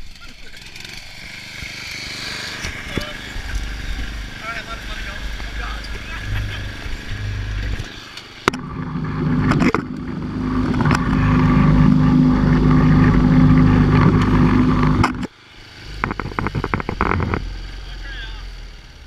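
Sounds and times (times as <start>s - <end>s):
lawn mower engine running: 0.0s - 19.0s
rattling clicks and knocks: 8.5s - 15.3s, 16.0s - 17.5s.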